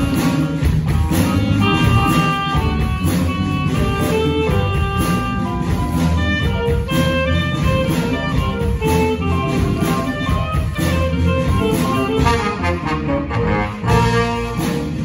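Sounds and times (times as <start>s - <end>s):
live jazz band playing: 0.0s - 15.0s.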